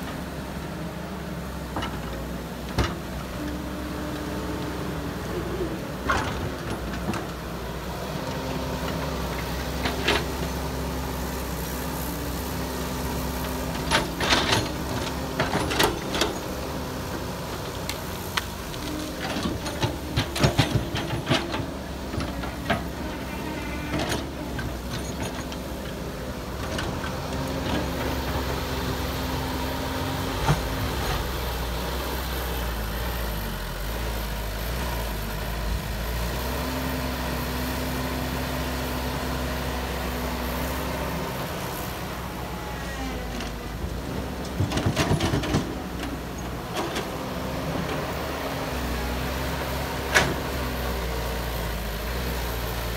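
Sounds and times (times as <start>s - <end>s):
heavy diesel engines droning: 0.0s - 52.9s.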